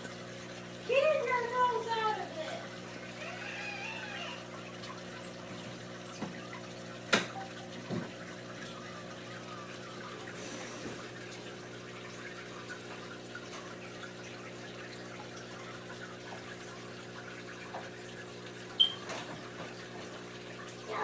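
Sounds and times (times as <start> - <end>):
aquarium bubbling: 0.0 - 21.0
water trickling: 0.0 - 21.0
air pump humming: 2.2 - 11.8.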